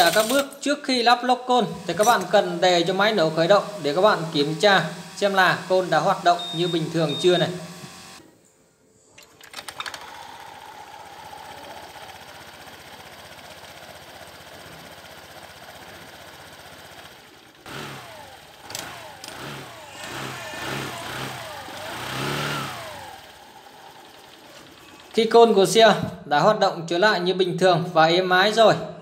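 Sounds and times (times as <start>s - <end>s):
drive belt and clutch spinning: 0.0s - 0.5s, 1.6s - 8.2s, 9.2s - 26.0s
scooter engine idling and revving: 1.8s - 8.2s, 9.7s - 25.6s.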